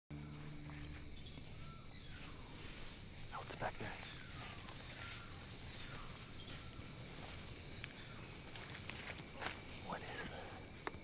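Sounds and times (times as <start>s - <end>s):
chorus of night insects: 0.1s - 11.0s
faint ticks: 10.2s - 11.0s.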